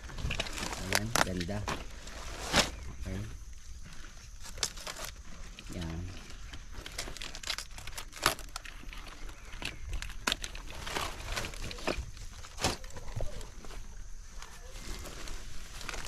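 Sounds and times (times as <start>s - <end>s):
leaves snapping: 0.0s - 3.0s, 4.4s - 13.6s
cabbage leaves crackling: 0.0s - 16.0s.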